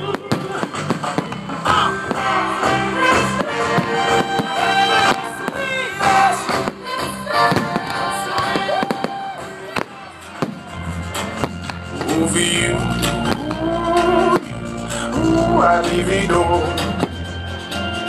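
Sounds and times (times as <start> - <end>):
pop music with singing: 0.0 - 18.0.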